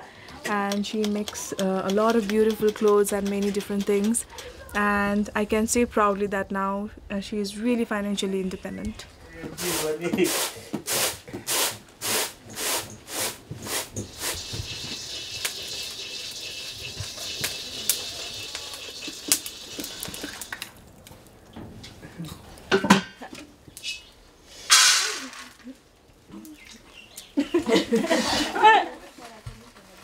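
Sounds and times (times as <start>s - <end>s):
grain roasting hiss: 2.7s - 20.9s, 23.8s - 25.5s
grain swishing in a tray: 9.6s - 20.0s
ladle scraping a pan: 13.7s - 20.5s
woman laughing: 27.4s - 29.0s.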